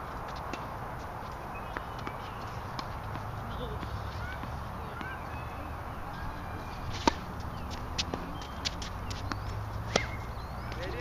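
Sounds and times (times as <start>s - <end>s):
racket striking tennis ball: 6.9s - 10.3s
distant ball bouncing and hit: 6.9s - 11.0s.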